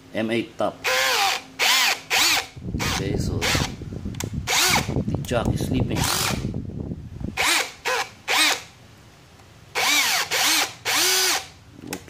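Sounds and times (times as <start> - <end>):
drill grinding: 0.8 - 3.8, 4.4 - 5.0, 6.0 - 6.4, 7.4 - 8.7, 9.7 - 11.6
drill motor whining: 0.8 - 3.8, 4.4 - 5.0, 6.0 - 6.4, 7.4 - 8.7, 9.7 - 11.6.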